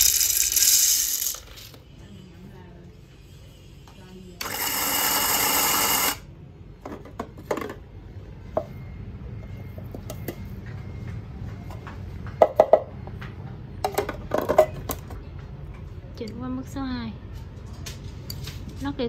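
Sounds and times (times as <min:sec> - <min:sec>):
coffee grinder motor running: 0:00.0 - 0:01.4, 0:04.4 - 0:06.2.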